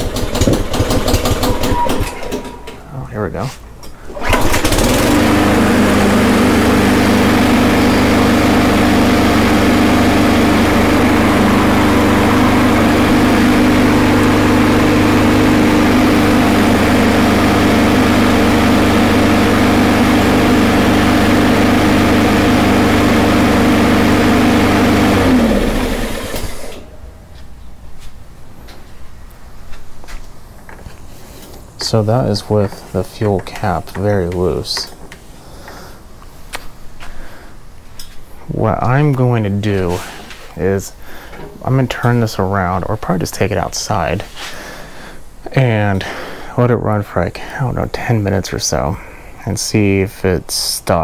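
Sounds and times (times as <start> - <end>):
small mower engine running: 0.0 - 3.0, 4.1 - 27.0.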